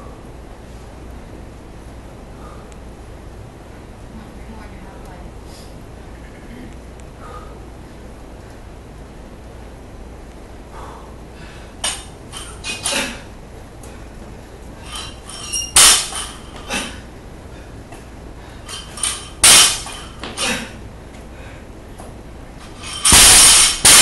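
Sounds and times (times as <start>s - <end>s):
barbell plates clanking: 14.8s - 16.9s, 18.7s - 20.6s, 22.6s - 24.0s.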